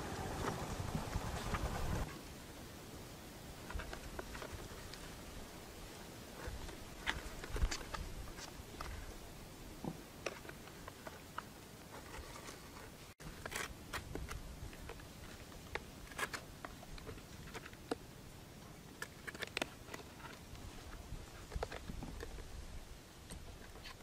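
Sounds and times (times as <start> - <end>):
nylon line clicking and rustling: 3.6 - 5.2, 5.9 - 9.2, 18.8 - 24.0.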